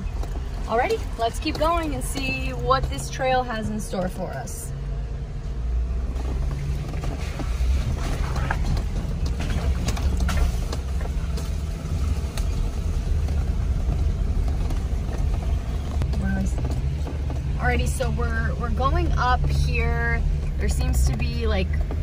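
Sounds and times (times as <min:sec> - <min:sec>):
low engine rumble: 0:00.0 - 0:22.0
clicks and rattles: 0:06.5 - 0:17.6.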